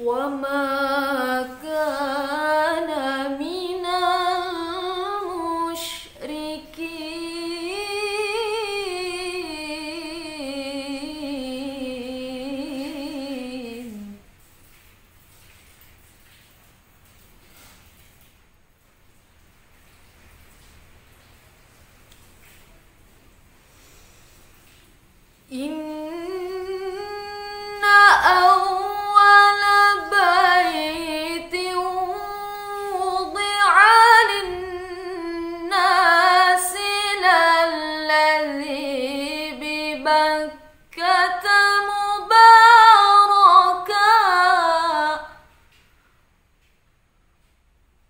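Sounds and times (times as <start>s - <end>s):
woman reciting melodically: 0.0s - 14.2s, 25.5s - 45.5s.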